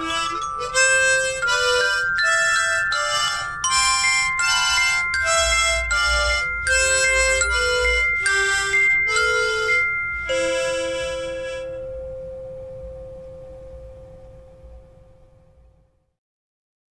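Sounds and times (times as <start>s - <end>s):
instrumental music final chord: 0.0s - 15.6s.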